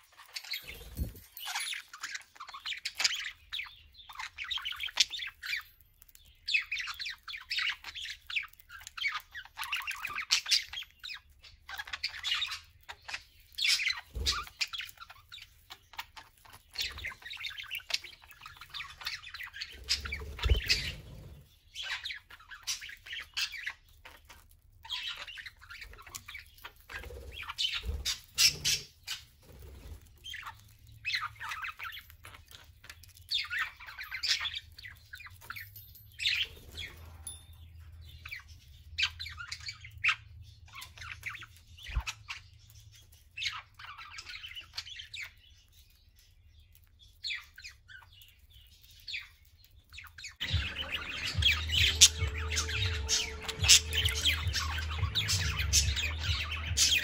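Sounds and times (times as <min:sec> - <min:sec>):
budgerigars chattering: 0:06.6 - 0:24.3, 0:24.9 - 0:35.6, 0:49.0 - 0:57.0.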